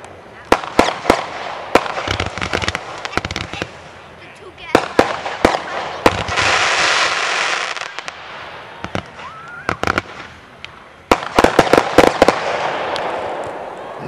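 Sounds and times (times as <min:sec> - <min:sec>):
fireworks bangs: 0:00.0 - 0:14.0
firework hissing: 0:00.5 - 0:14.0
firework rising whistle: 0:07.0 - 0:10.4.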